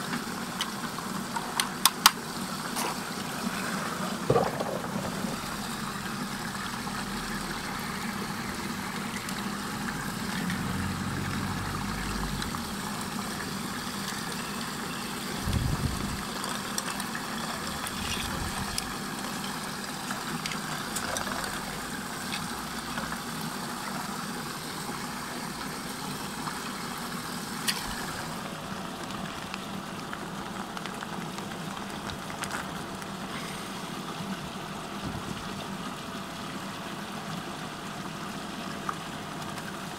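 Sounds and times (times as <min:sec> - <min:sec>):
water rushing down a drain: 0:00.1 - 0:39.9
objects knocking and splashing: 0:04.1 - 0:05.4.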